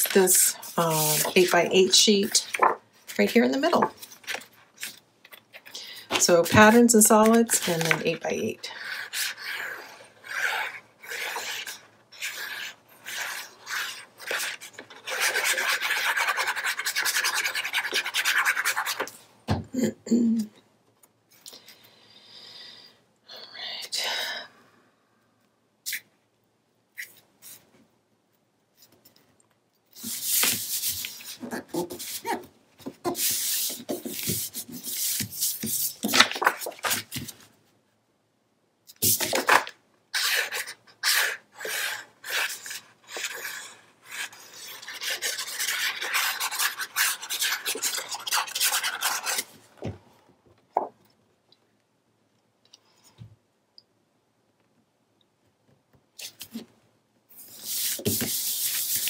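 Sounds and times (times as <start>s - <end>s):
paper rustling and rubbing: 0.0s - 5.7s, 30.0s - 37.5s, 57.3s - 59.0s.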